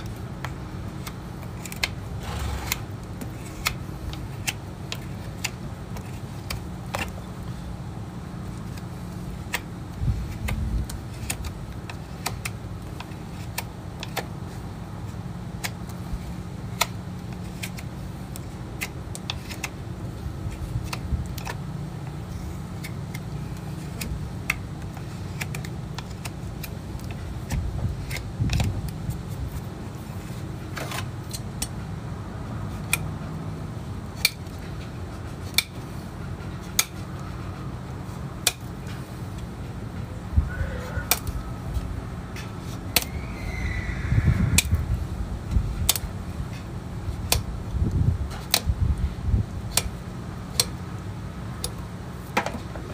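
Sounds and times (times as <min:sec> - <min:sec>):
tools snapping cutting hoof: 0:00.0 - 0:07.3, 0:10.3 - 0:14.3, 0:16.7 - 0:19.8, 0:22.8 - 0:29.1, 0:32.8 - 0:33.2, 0:34.2 - 0:34.8, 0:35.4 - 0:35.8, 0:36.6 - 0:37.3, 0:38.4 - 0:39.5, 0:41.0 - 0:43.2, 0:45.8 - 0:47.5, 0:48.3 - 0:48.7, 0:49.7 - 0:50.8
low hum: 0:35.9 - 0:45.8.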